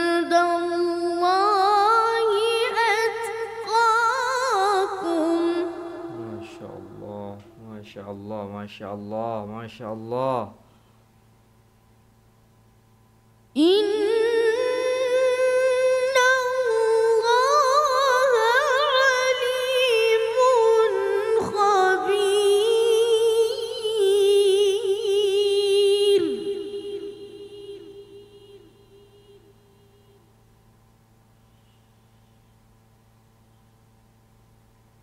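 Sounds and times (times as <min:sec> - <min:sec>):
boy reciting melodically: 0:00.0 - 0:10.6, 0:13.6 - 0:30.0.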